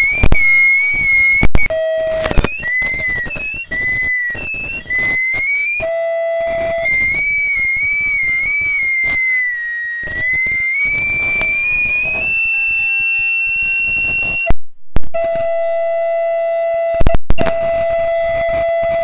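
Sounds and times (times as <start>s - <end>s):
loud pops: 0.0s - 5.9s, 17.0s - 17.9s
audio feedback squeal: 0.0s - 19.0s.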